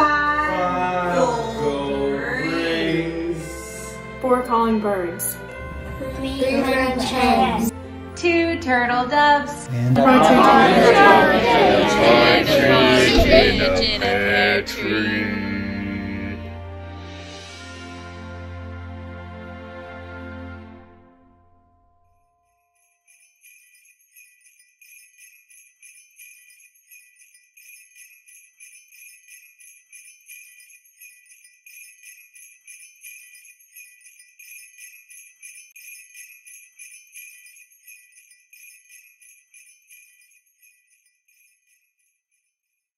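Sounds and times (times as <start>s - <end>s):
jingle bells shaking: 0.0s - 7.7s, 9.6s - 15.2s, 22.6s - 42.9s.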